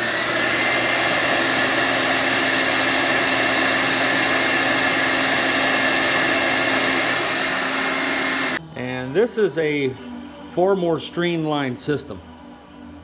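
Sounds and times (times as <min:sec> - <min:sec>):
electric blower whining: 0:00.0 - 0:08.6.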